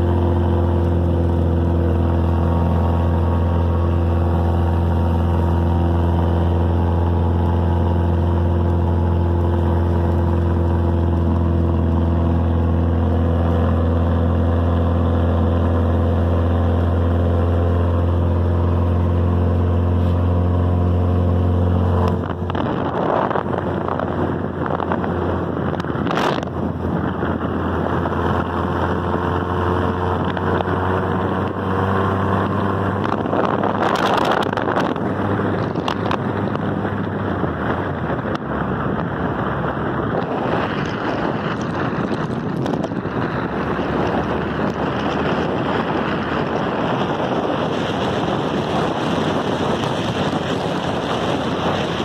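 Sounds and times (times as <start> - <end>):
car engine humming: 0.0 - 52.0
wind on microphone: 0.0 - 52.0.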